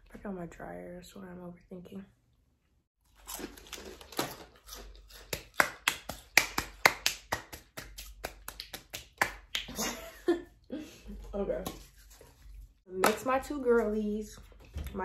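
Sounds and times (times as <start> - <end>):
hand claps: 5.3 - 9.8.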